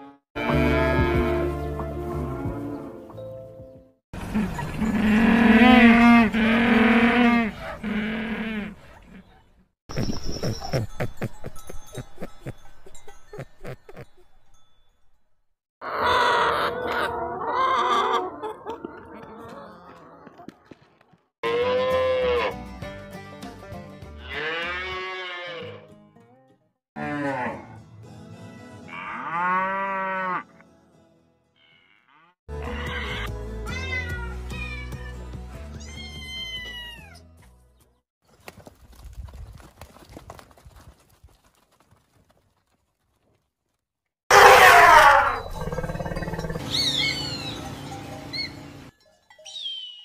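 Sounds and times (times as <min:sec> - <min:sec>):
cattle mooing: 0:04.4 - 0:08.8, 0:24.3 - 0:25.8, 0:28.9 - 0:30.5
hawk screaming: 0:44.3 - 0:46.0
elephant trumpeting: 0:44.3 - 0:47.6.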